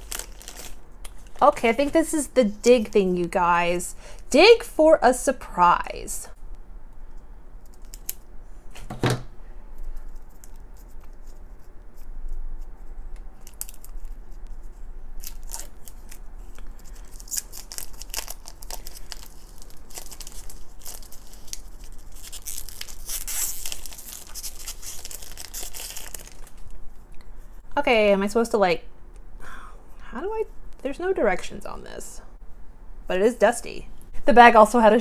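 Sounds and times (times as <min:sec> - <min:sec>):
plastic film crinkling and tearing: 0:00.0 - 0:01.7, 0:13.4 - 0:14.4, 0:15.2 - 0:26.8.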